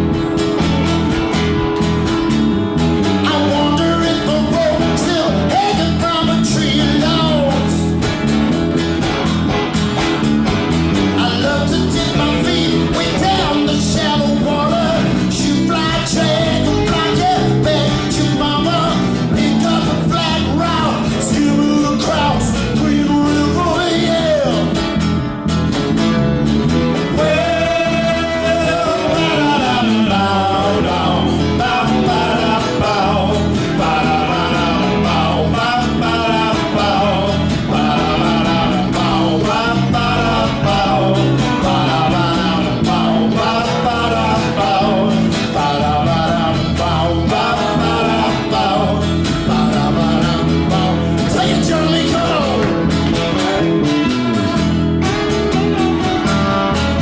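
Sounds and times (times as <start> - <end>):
bass guitar: 0.0 - 57.0
electric guitar: 0.0 - 57.0
strummed acoustic guitar: 0.0 - 57.0
man singing: 3.0 - 8.1, 11.0 - 25.0, 26.9 - 53.4.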